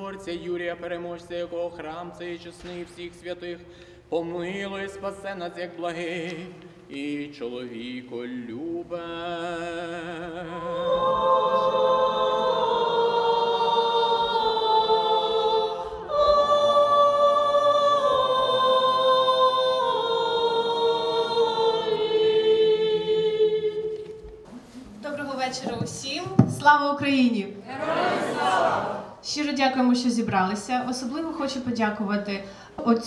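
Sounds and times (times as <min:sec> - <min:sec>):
congregation singing a cappella: 0:00.0 - 0:24.5, 0:27.6 - 0:29.2.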